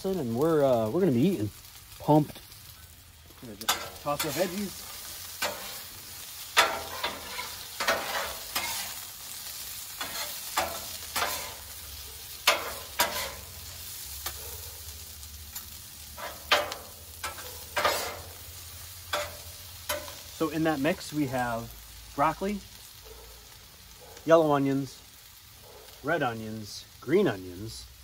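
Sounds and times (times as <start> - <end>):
food sizzling on griddle: 0.0 - 28.0
spatulas scraping on metal: 3.6 - 5.9, 6.5 - 9.1, 10.0 - 11.7, 12.4 - 13.6, 16.2 - 18.4, 19.1 - 20.2.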